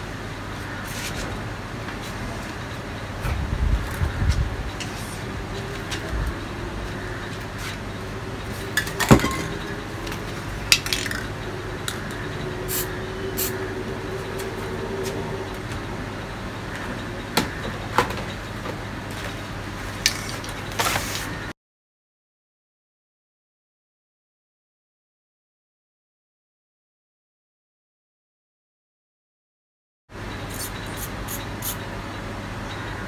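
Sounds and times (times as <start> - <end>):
spray cans and metal lids clinking: 8.8 - 9.7.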